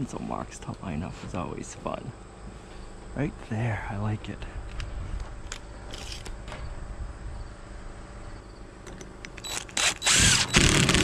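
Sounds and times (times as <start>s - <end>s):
insects trilling: 5.6s - 10.7s.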